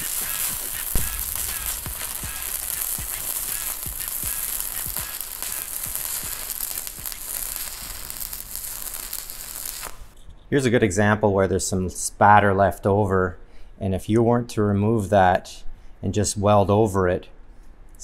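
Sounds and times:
welding arc crackling: 0:00.0 - 0:10.2.

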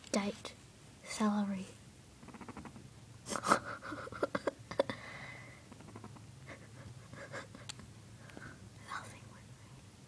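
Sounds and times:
guinea pig purring: 0:02.1 - 0:04.2, 0:05.6 - 0:07.1.

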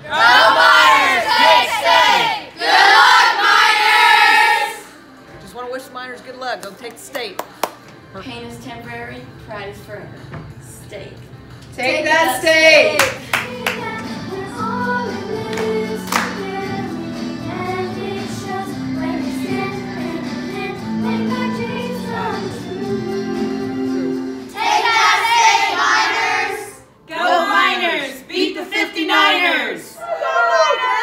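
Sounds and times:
girls singing together: 0:00.0 - 0:05.0, 0:12.3 - 0:29.9.

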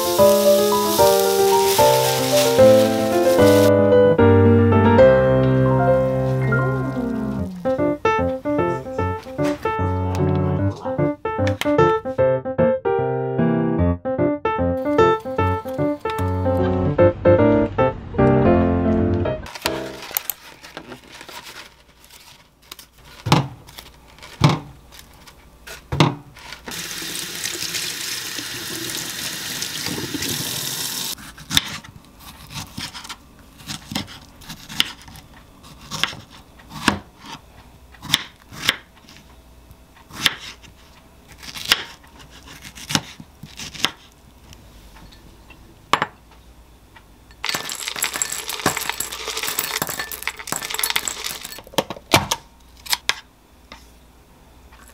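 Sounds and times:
running water: 0:26.7 - 0:31.2
knife cutting on wooden board: 0:41.4 - 0:44.0
granola rattling into glass bowl: 0:47.4 - 0:51.8.

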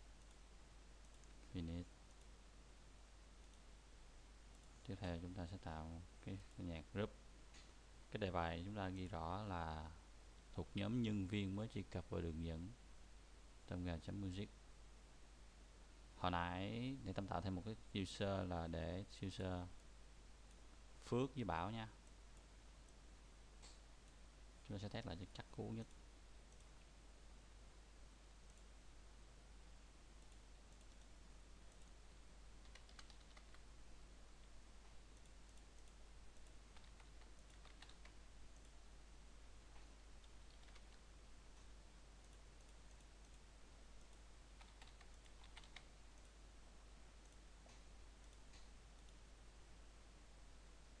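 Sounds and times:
faint room hiss: 0:00.0 - 0:51.0
mouse clicks: 0:00.1 - 0:00.4, 0:01.0 - 0:02.3, 0:23.6 - 0:24.8, 0:25.8 - 0:26.9, 0:28.3 - 0:28.7, 0:30.2 - 0:32.0, 0:32.6 - 0:33.7, 0:34.4 - 0:38.8, 0:39.7 - 0:46.4, 0:47.2 - 0:49.3
computer keyboard keystrokes: 0:32.6 - 0:33.6, 0:36.7 - 0:38.7, 0:40.2 - 0:41.0, 0:44.1 - 0:45.9.

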